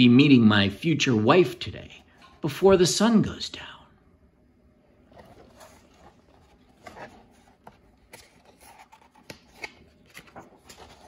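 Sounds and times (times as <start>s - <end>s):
paper page rustling and turning: 5.0s - 11.0s.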